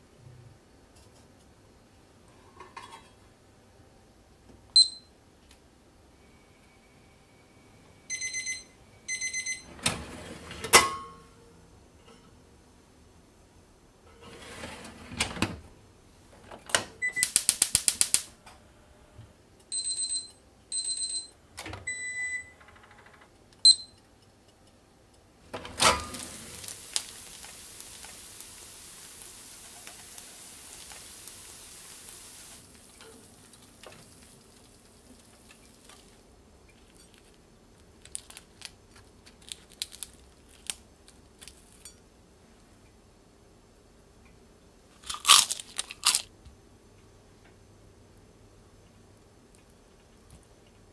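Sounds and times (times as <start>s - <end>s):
fish sizzling: 17.2s - 18.3s, 25.9s - 36.3s
spark igniter clicking: 17.2s - 18.3s, 26.2s - 33.0s
grill drawer clunk: 25.5s - 26.6s.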